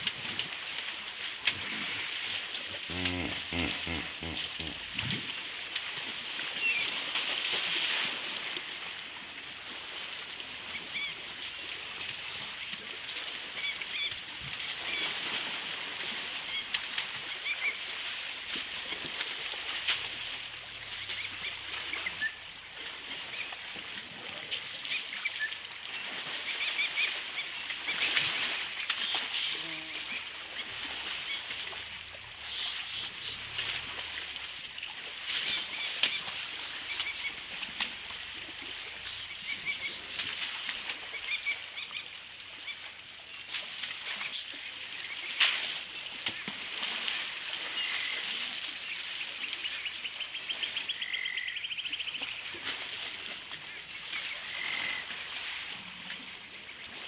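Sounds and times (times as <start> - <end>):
elephants splashing in water: 0.0 - 41.9, 43.5 - 49.8, 52.1 - 57.0
short bird calls: 2.9 - 4.8.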